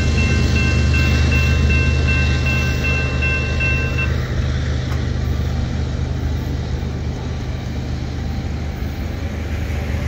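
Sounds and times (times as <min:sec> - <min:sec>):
road vehicles idling: 0:00.0 - 0:10.0.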